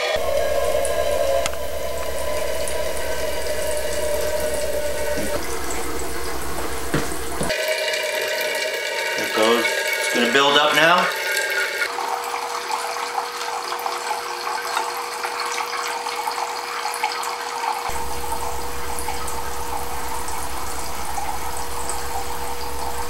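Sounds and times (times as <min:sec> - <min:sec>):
low buzz: 0:00.0 - 0:07.5, 0:17.9 - 0:23.0
thin steady hum: 0:00.0 - 0:07.5, 0:17.9 - 0:23.0.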